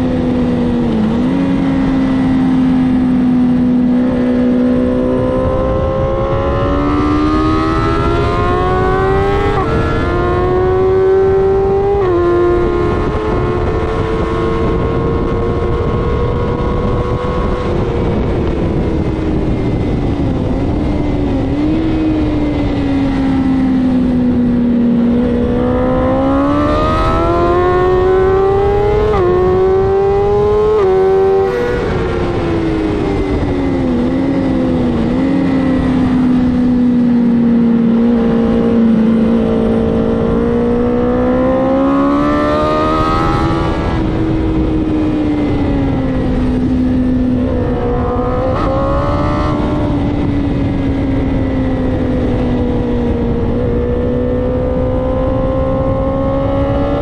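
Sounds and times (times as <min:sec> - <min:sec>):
wind rushing: 0:00.0 - 0:57.0
sport bike engine revving: 0:02.9 - 0:18.5, 0:25.0 - 0:32.4, 0:37.3 - 0:45.0, 0:45.6 - 0:52.4.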